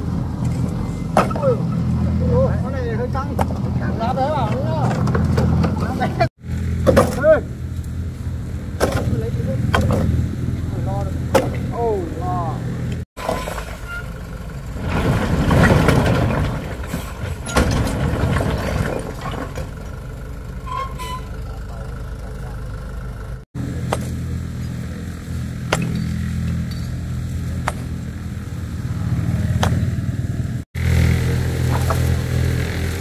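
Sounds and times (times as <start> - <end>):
small engine running: 21.9 - 33.0.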